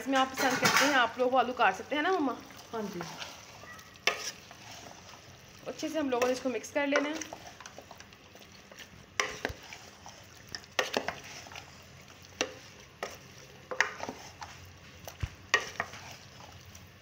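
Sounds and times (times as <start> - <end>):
spoon stirring food in metal pot: 0.0 - 17.0
spoon knocking and scraping pot: 0.1 - 1.2, 4.0 - 4.9, 6.1 - 16.5.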